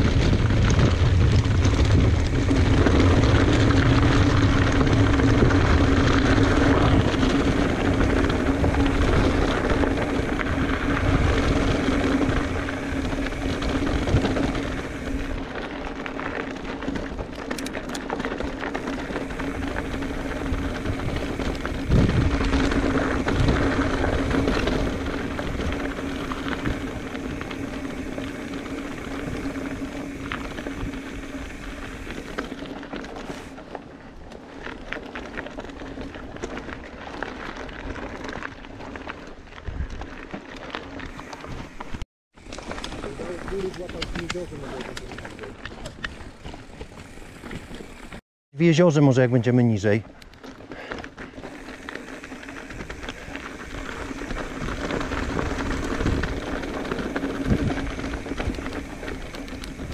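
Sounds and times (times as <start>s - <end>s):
wind rumbling on microphone: 0.0s - 48.2s, 49.8s - 59.9s
bike tyres rattling over rock: 0.0s - 59.9s.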